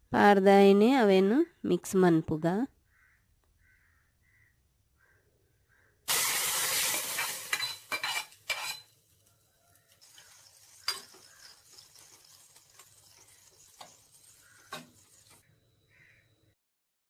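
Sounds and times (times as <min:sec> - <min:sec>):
spoon stirring in pot: 0:06.8 - 0:09.0, 0:09.8 - 0:15.4.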